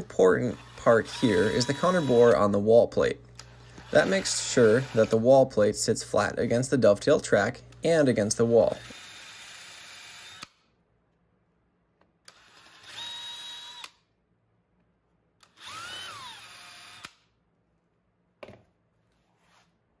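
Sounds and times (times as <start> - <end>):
cordless drill boring wood: 0.3 - 2.6, 3.7 - 5.4, 8.4 - 10.6, 12.3 - 14.0, 15.4 - 17.2.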